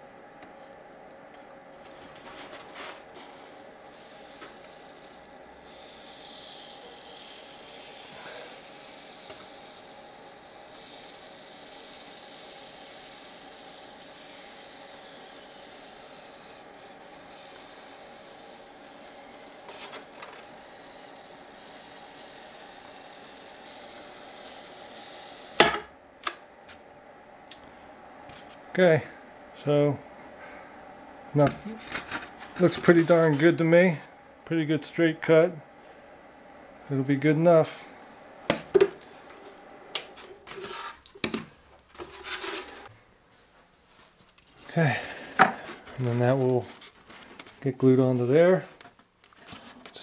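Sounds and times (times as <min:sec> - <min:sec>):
hot wire cutting foam hiss: 0:01.8 - 0:25.8.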